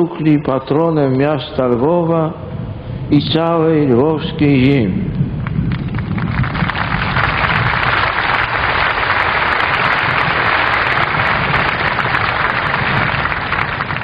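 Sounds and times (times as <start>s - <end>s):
crowd applauding: 5.4s - 14.0s.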